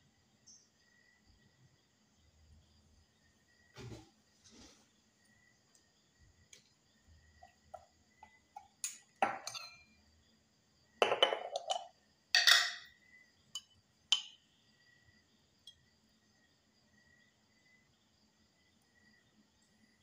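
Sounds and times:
metal spoon knocking on glass: 8.6s - 9.8s, 11.0s - 12.9s.

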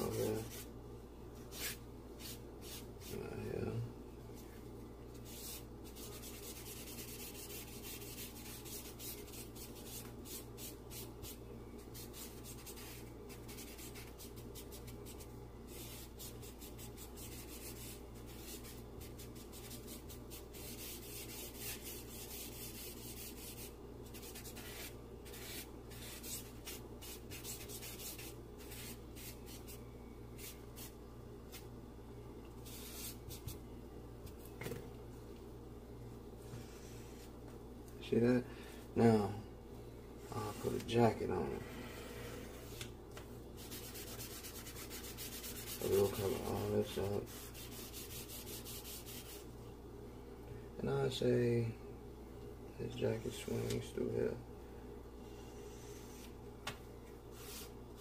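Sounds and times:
charcoal scratching on paper: 0.0s - 0.7s, 1.5s - 3.2s, 5.1s - 29.8s, 32.6s - 33.6s, 43.6s - 49.4s, 57.3s - 58.0s
faint low hum: 0.0s - 58.0s.

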